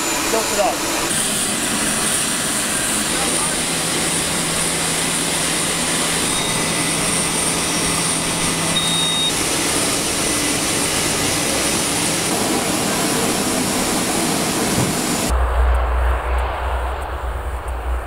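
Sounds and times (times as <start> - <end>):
aircraft engines whining: 0.0 - 18.0
forklift engine running: 2.5 - 15.4.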